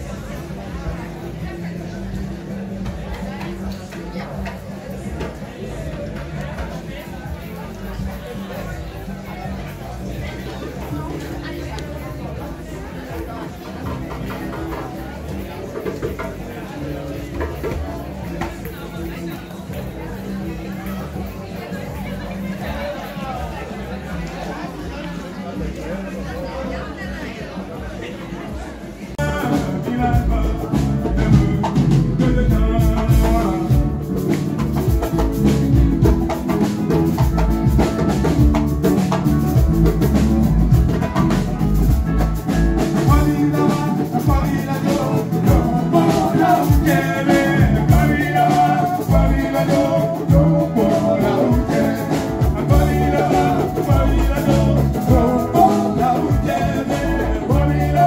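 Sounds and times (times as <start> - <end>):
drum kit: 0.0 - 22.7, 29.2 - 58.0
live band playing upbeat song: 0.0 - 27.2, 29.1 - 58.0
person singing: 29.2 - 35.9, 42.8 - 58.0.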